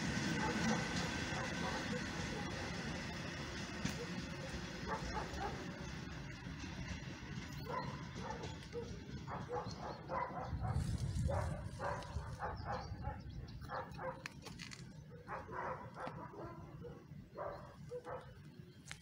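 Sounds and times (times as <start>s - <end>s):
steady low rumble: 0.0s - 19.0s
dog barking: 0.4s - 2.6s, 4.9s - 5.7s, 7.6s - 14.3s, 15.1s - 18.4s.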